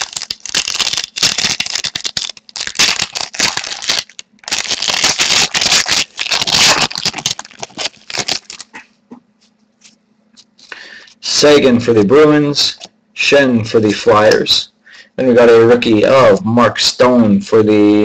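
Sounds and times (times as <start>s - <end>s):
plastic wrapper crinkling: 0.0s - 8.9s.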